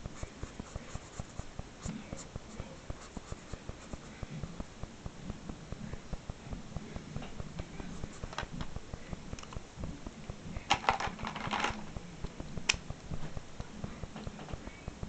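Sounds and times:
marker scratching on paper: 0.0 - 4.3
pens clicking rattling: 10.6 - 12.0.

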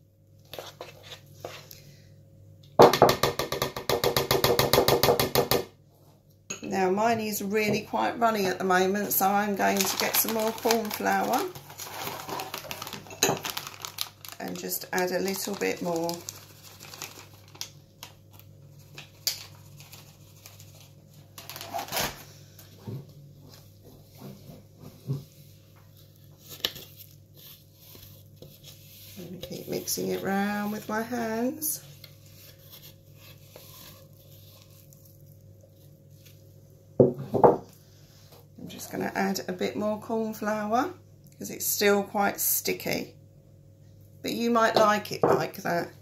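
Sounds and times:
mixture worked in a bowl: 0.1 - 1.9, 7.5 - 21.4, 22.7 - 37.0.

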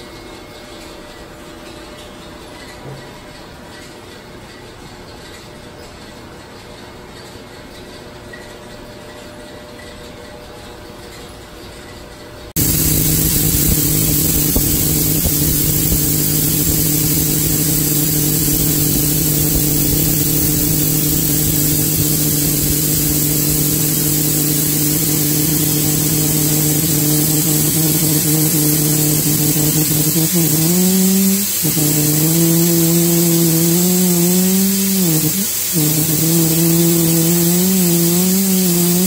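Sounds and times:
gas hissing from fitting: 12.6 - 39.0.

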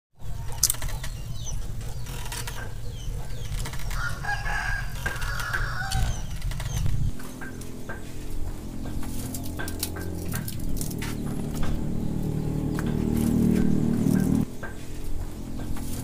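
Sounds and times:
rooster crowing: 3.9 - 6.4
steady low rumble: 6.0 - 16.0.

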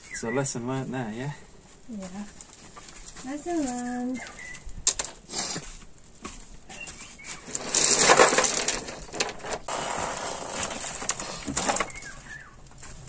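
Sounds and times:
stones rattling in metal wheelbarrow: 7.4 - 12.1.

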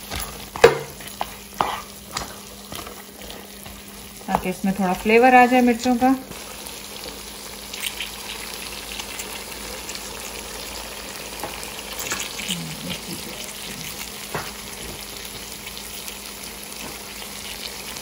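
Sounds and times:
meat sizzling in oil: 0.0 - 18.0.

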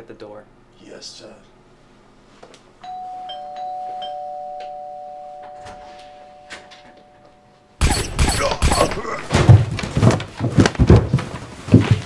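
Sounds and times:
two-tone doorbell chime: 2.8 - 7.7.

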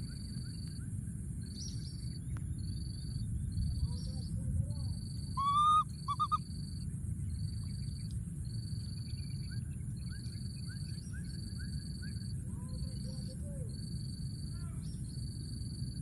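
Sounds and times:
baby macaque calling: 5.4 - 6.4.

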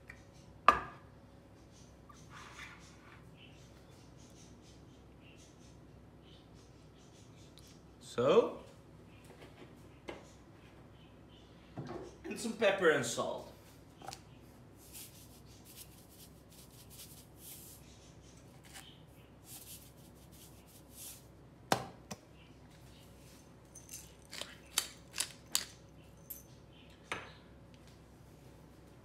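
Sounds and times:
pepper mill grinding: 23.9 - 25.8.

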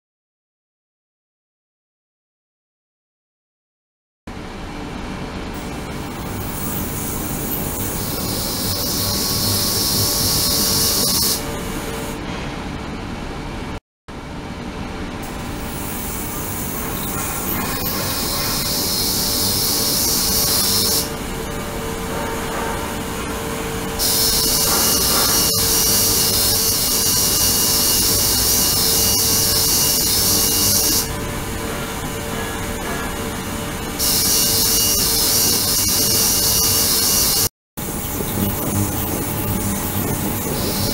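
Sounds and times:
steady hum: 4.3 - 40.9
ultrasonic cleaner hissing: 24.0 - 31.1.

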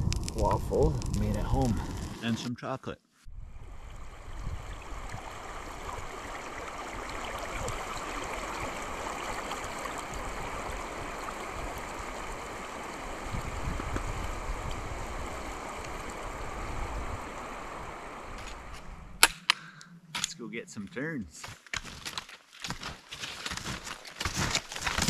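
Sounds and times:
creek water flowing: 3.3 - 19.2.

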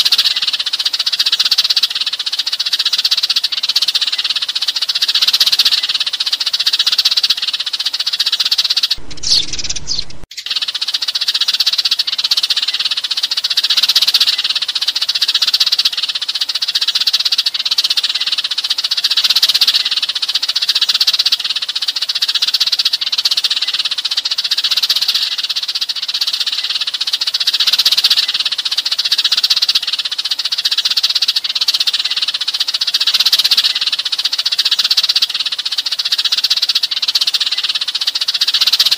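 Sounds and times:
sparrows chirping: 0.0 - 38.9
dull low sound: 9.0 - 10.3.

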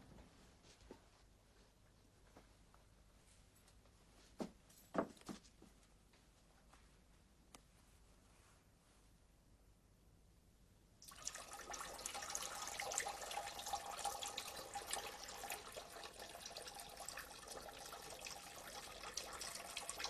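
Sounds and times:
urine splashing into toilet water: 11.0 - 20.0.

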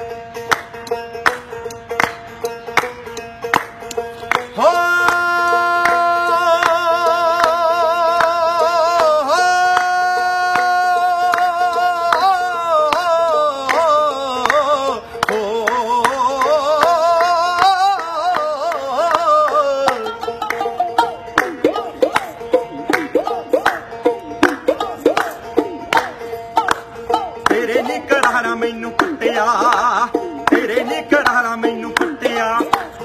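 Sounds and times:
plucked string instrument: 0.0 - 33.0
man singing with vibrato: 4.5 - 33.0.

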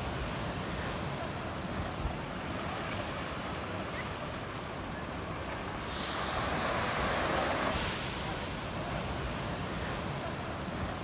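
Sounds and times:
ocean surf over rocks: 0.0 - 11.0.

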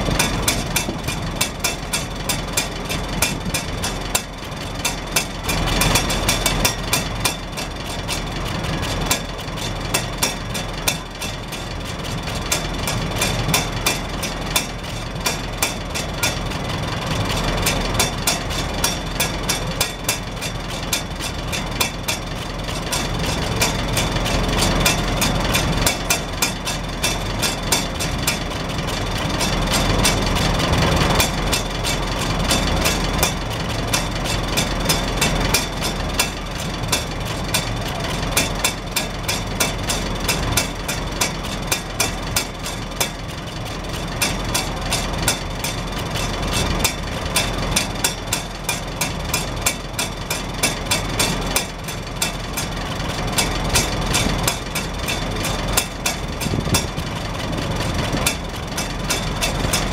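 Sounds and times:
exhaust rain cap clattering: 0.0 - 59.9
tractor engine idling: 0.0 - 59.9.

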